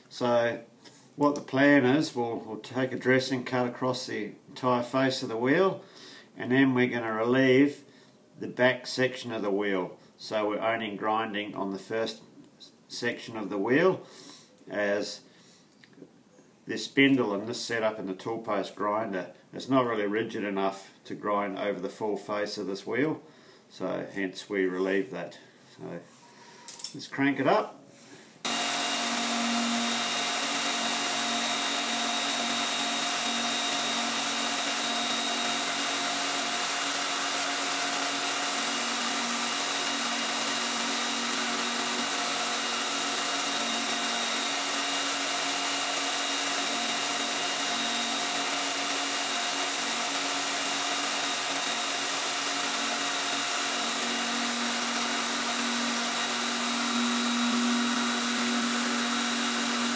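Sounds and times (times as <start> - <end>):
grinder motor hum and whine: 28.5 - 59.9.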